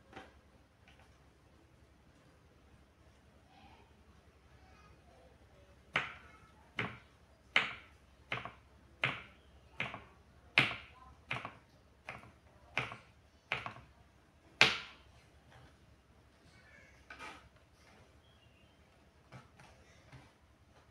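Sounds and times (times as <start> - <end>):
knife chopping on wooden board: 7.6 - 13.8.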